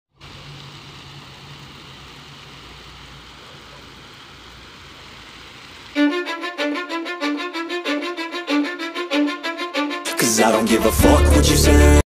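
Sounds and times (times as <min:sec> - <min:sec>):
water spraying on plants: 0:00.1 - 0:07.1.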